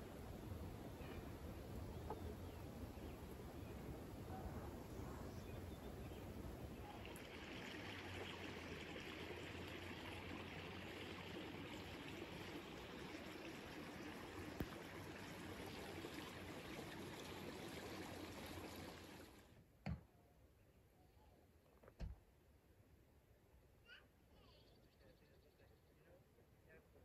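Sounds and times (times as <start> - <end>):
stream flowing: 0.0 - 19.5.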